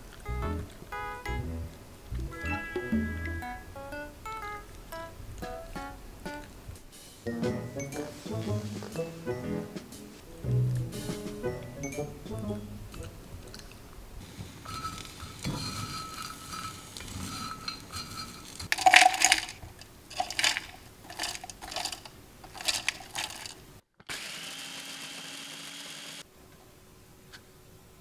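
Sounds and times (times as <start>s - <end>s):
dried fish rattling into plastic bowl: 18.6s - 23.6s
food processor motor grinding: 24.1s - 26.2s.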